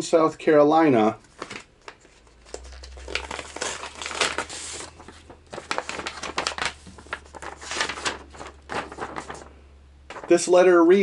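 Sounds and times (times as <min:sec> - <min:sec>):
paper rustling and crinkling: 0:01.2 - 0:10.4.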